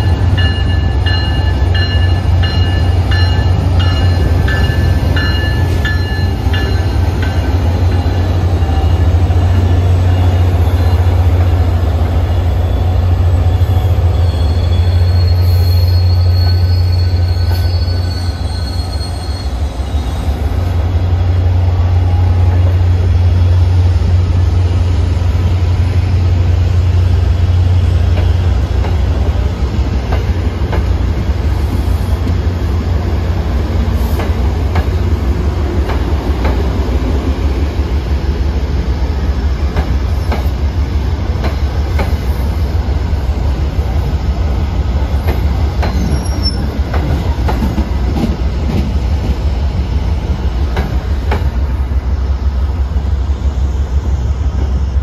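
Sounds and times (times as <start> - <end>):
diesel locomotive drone: 0.0 - 55.0
train wheels rolling on rails: 0.0 - 55.0
high wheel squeals: 12.2 - 20.5, 45.9 - 46.8.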